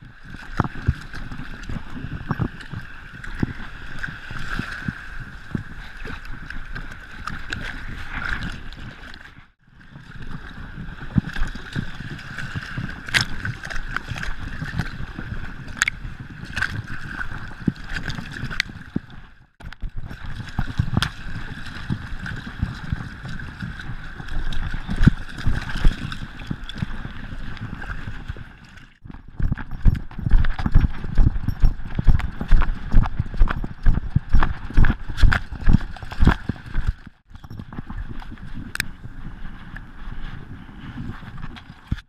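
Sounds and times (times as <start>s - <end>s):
splashing through shallow water: 0.1s - 39.0s
dog galloping thuds: 29.0s - 38.2s.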